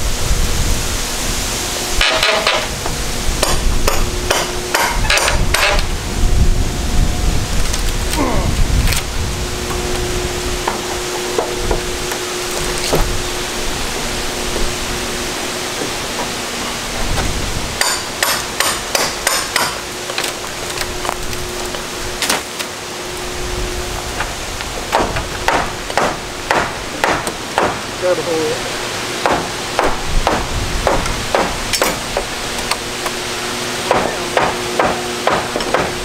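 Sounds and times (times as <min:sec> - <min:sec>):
hammer driving nails into wood: 0:17.8 - 0:20.3, 0:29.2 - 0:32.8, 0:33.9 - 0:36.0.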